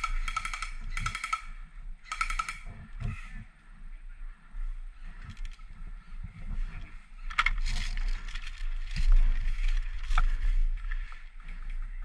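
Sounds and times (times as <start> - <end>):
rustling through dry grass: 4.4 - 12.0.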